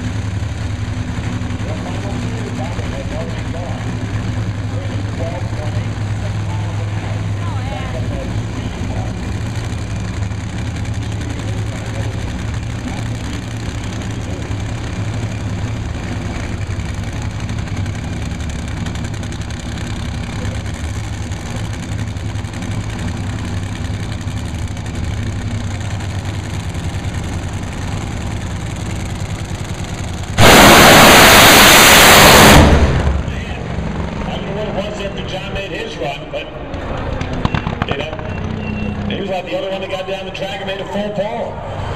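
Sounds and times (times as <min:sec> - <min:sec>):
race cars idling: 0:00.0 - 0:41.9
race cars launching blast: 0:30.4 - 0:33.7.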